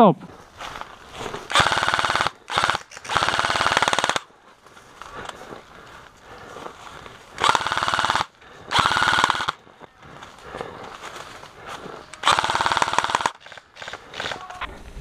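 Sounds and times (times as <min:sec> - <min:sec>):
airsoft rifle firing bursts: 0:01.4 - 0:04.3, 0:07.4 - 0:09.6, 0:12.2 - 0:14.6.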